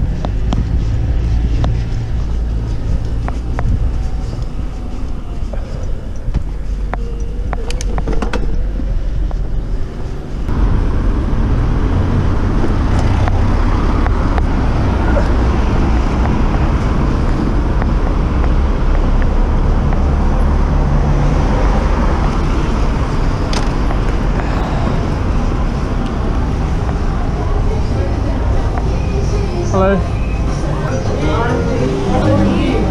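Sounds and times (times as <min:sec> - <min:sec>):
passing car traffic: 0:00.0 - 0:32.9
wind and road rumble: 0:00.0 - 0:32.9.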